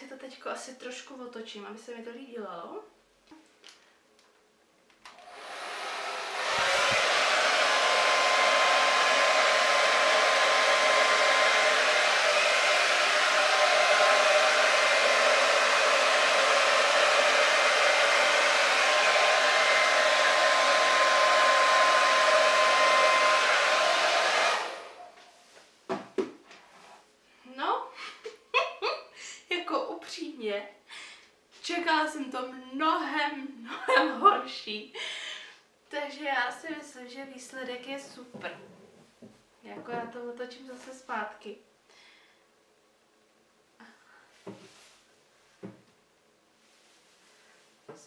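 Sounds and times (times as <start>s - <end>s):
hair dryer blowing: 5.1s - 25.2s.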